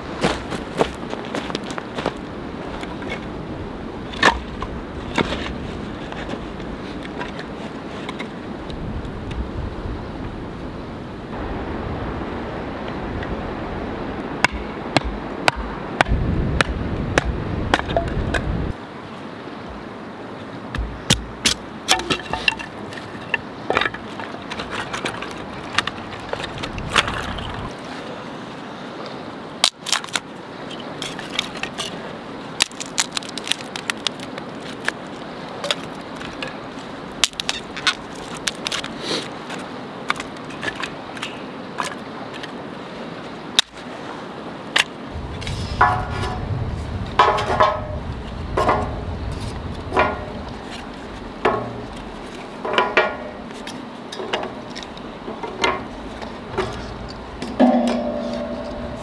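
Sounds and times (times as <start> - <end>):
river water rushing: 10.4 - 29.6, 34.2 - 59.0
wood cracking and snapping: 32.6 - 35.0, 37.2 - 38.9.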